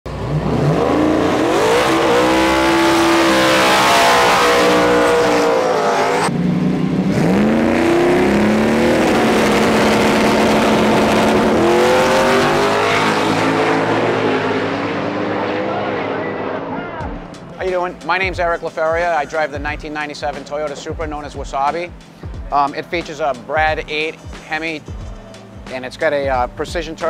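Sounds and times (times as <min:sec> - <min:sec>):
drag car engine revving: 0:00.1 - 0:17.4.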